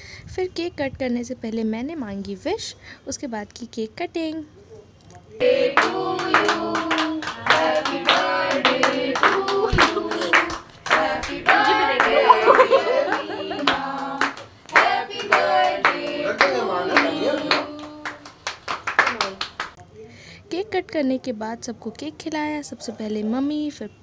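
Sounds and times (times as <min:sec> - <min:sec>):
group singing: 0:05.4 - 0:18.3
people clapping rhythmically: 0:05.4 - 0:19.8.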